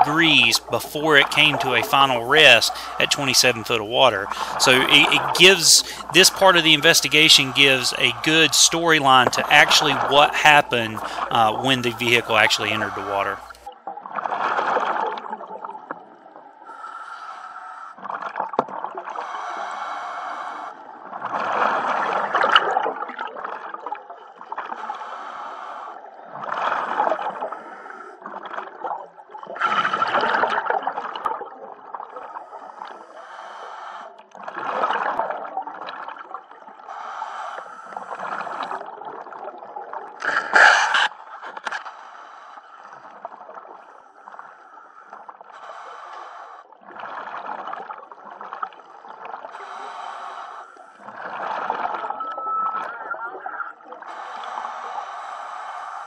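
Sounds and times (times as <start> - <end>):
bubbling exhale: 0.4 - 13.5, 40.2 - 42.6
regulator hissing inhale: 2.7 - 3.0, 5.8 - 6.1, 45.6 - 46.6, 49.6 - 50.9, 54.1 - 56.0.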